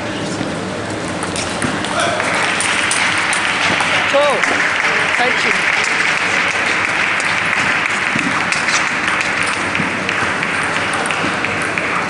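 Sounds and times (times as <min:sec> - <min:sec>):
crowd noise in hall: 0:00.0 - 0:12.0
table tennis ball clicks: 0:05.9 - 0:12.0.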